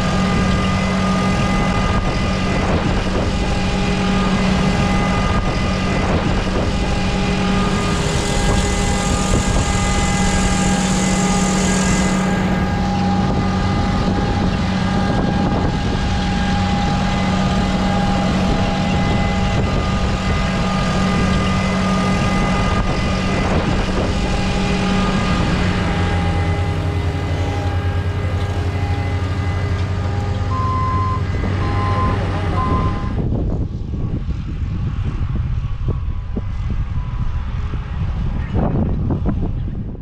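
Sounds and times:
farm machinery engines droning: 0.0 - 40.0
steady rushing noise: 0.0 - 40.0
short beeps: 30.4 - 33.2.

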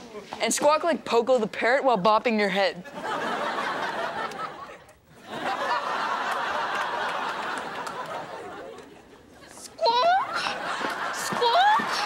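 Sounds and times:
audience laughter: 2.8 - 9.6, 10.2 - 12.0.

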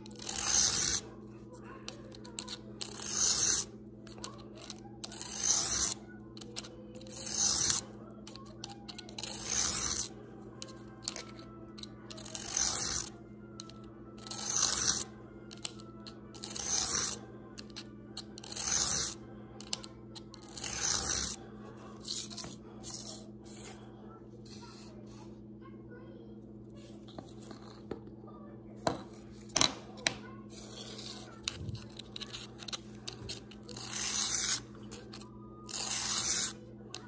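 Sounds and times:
blade scraping sharpening stone: 0.1 - 1.0, 2.3 - 6.0, 6.6 - 10.1, 11.0 - 13.1, 14.2 - 19.2, 20.4 - 21.4, 30.6 - 36.6.

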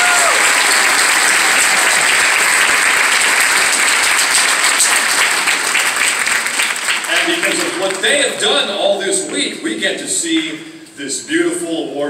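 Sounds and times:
audience applauding: 0.0 - 9.4.

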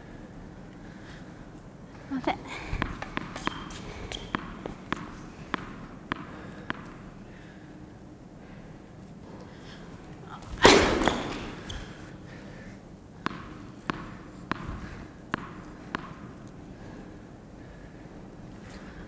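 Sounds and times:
tennis ball bouncing on hard court: 2.5 - 7.3, 10.5 - 12.1, 13.2 - 16.8
tennis serve crack: 2.7 - 7.2, 10.5 - 12.1, 13.2 - 16.6.

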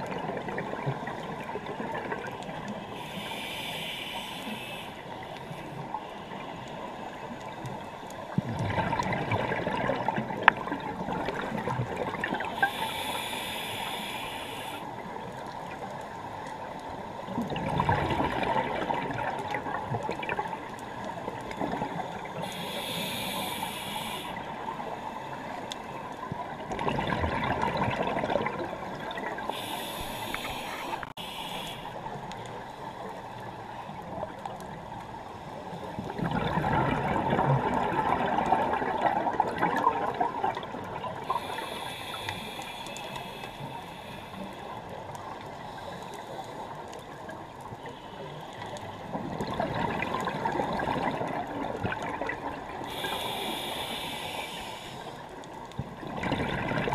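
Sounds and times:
regulator inhale hiss: 2.7 - 7.0, 12.4 - 15.2, 22.0 - 26.2, 29.4 - 33.1, 41.2 - 46.8, 52.8 - 55.8
exhaled bubbles rushing: 8.5 - 12.4, 17.4 - 20.4, 26.6 - 29.2, 36.1 - 41.2, 49.2 - 52.7, 56.0 - 56.9.

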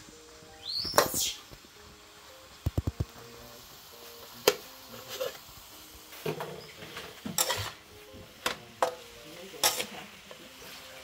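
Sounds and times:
metal spatula scraping a wok: 6.1 - 7.9, 8.8 - 11.0.

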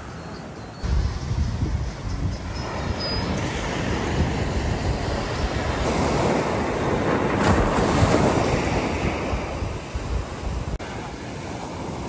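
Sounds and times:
wind buffeting microphone: 0.8 - 12.0
small waves breaking on beach: 2.6 - 12.0.

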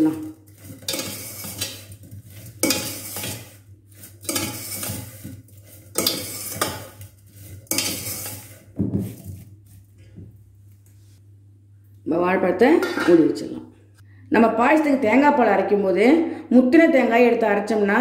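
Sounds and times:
spoon scraping metal pot: 0.0 - 9.5.

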